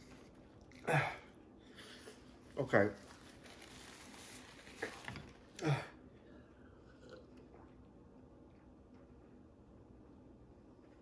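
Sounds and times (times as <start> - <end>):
faint gulping: 6.6 - 7.8.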